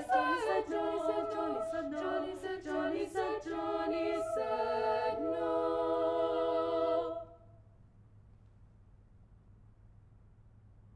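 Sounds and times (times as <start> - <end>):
female a cappella ensemble singing: 0.0 - 7.4.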